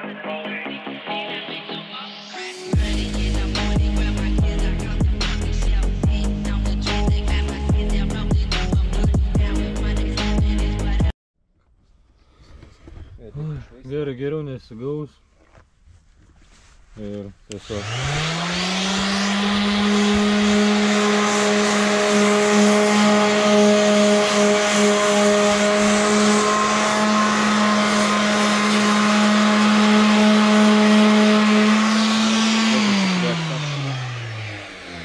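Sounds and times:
electric sander motor whine: 17.5 - 35.0
rasp of sanding: 17.6 - 33.9.

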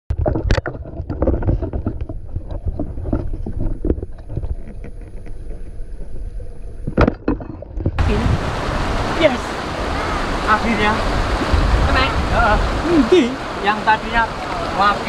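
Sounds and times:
small underwater clicks and knocks: 0.1 - 8.0
underwater low rumble: 0.1 - 10.4.

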